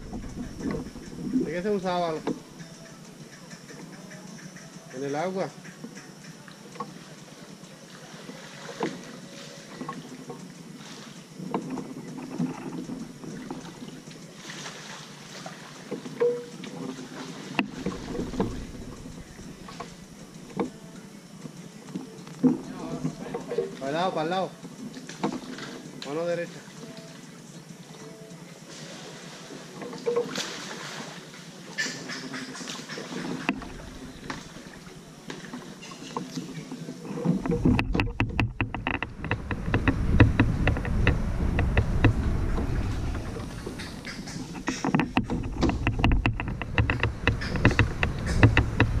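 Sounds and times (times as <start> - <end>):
low rumble: 0.0 - 2.5, 18.0 - 20.3, 38.2 - 44.3
paddle splashing in water: 6.7 - 20.8, 28.7 - 49.0
paddle knocks: 16.0 - 20.8, 32.0 - 36.5, 37.2 - 49.0
sharp clicks: 37.4 - 49.0.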